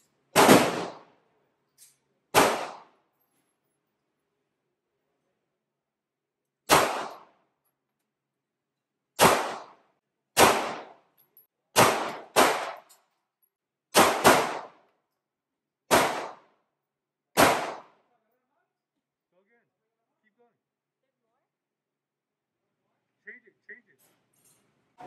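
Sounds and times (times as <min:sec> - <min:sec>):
handgun shots indoors: 0:00.4 - 0:01.1, 0:06.6 - 0:07.3, 0:11.7 - 0:12.9.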